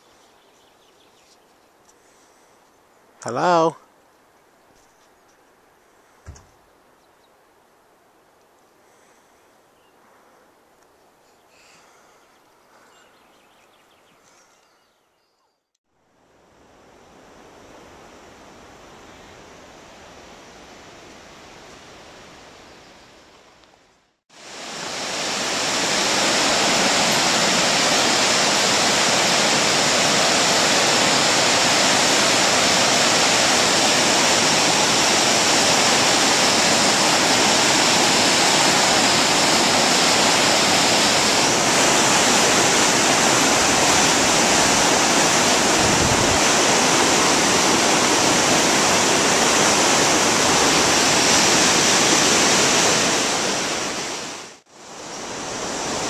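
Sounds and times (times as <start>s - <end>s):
river rapids rushing: 24.4s - 56.0s.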